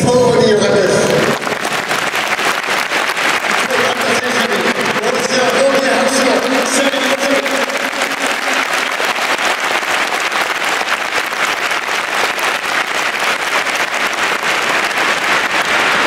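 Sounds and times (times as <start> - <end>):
man's amplified voice: 0.0 - 1.5, 3.5 - 8.9
stadium crowd clapping: 0.0 - 16.0.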